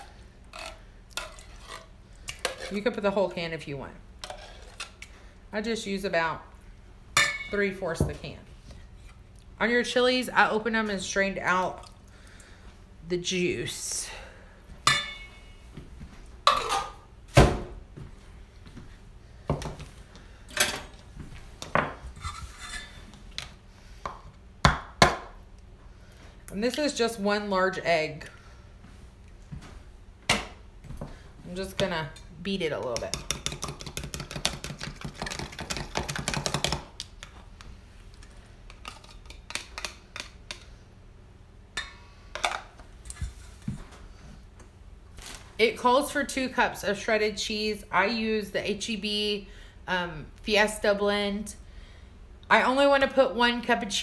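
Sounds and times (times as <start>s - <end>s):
fork scraping bowl: 0.0s - 2.9s.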